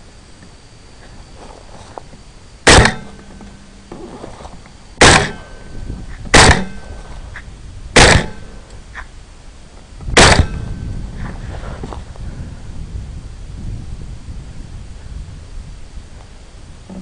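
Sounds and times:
rifle shots: 2.7 - 3.2, 5.0 - 5.6, 6.3 - 6.9, 8.0 - 8.6, 10.2 - 10.7.

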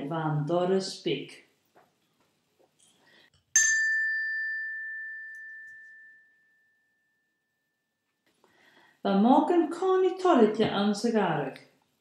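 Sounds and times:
small bell ringing: 3.5 - 8.0.

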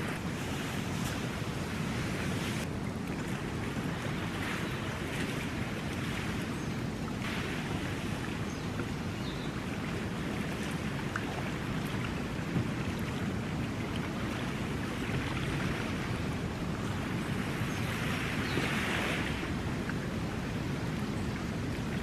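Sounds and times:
small waves lapping on shore: 0.0 - 22.0
wind rumble on microphone: 0.0 - 22.0.

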